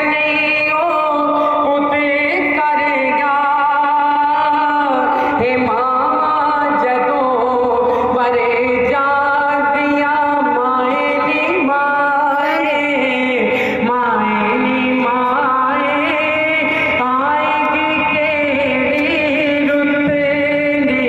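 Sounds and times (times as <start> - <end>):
man singing unaccompanied: 8.2 - 21.0.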